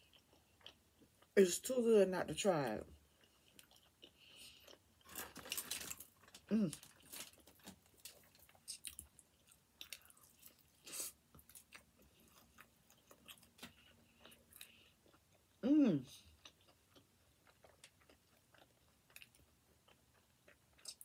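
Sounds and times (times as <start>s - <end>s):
person chewing food: 0.0s - 1.4s, 3.0s - 21.0s
person humming: 15.6s - 16.1s.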